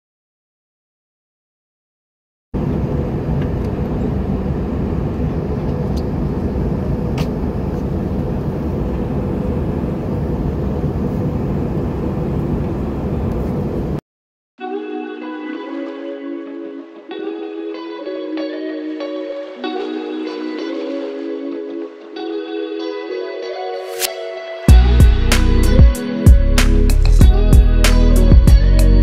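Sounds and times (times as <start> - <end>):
airplane cabin engine roar: 2.6 - 14.0
low hum: 2.6 - 14.0, 24.7 - 27.9.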